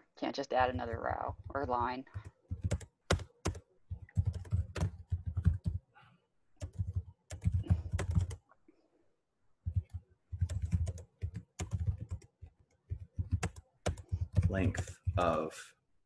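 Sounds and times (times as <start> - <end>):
computer keyboard typing: 0.8 - 5.9, 6.6 - 8.4, 9.7 - 15.5.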